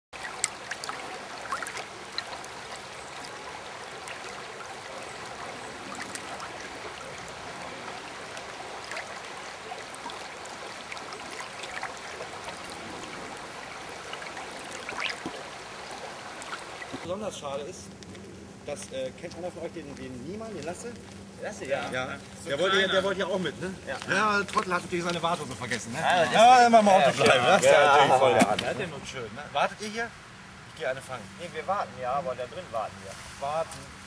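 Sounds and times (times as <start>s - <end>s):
small water splashes: 0.1s - 17.1s
river rushing over riffle: 0.2s - 17.1s.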